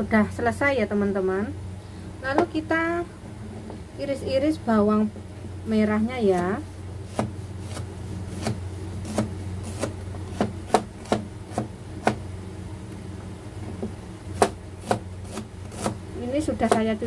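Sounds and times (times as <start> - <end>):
knife chopping on plastic board: 7.1 - 12.3, 13.8 - 16.0, 16.6 - 17.0.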